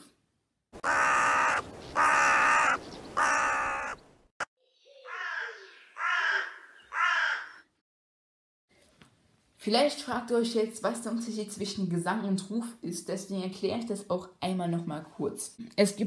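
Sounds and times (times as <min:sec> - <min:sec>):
crow cawing: 0:00.8 - 0:04.0, 0:05.0 - 0:07.7.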